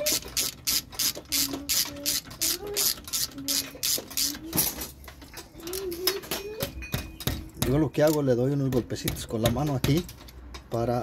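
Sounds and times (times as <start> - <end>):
ratchet wrench clicking: 0.0 - 4.4.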